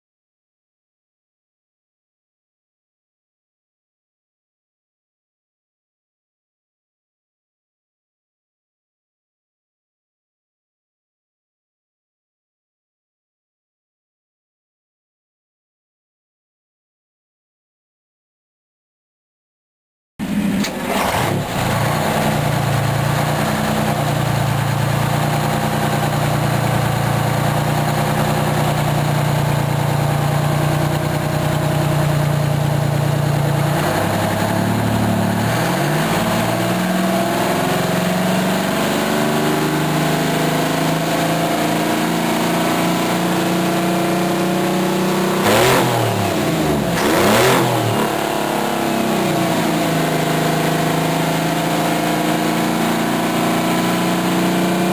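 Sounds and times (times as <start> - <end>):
diesel engine idling and revving: 20.2 - 54.9.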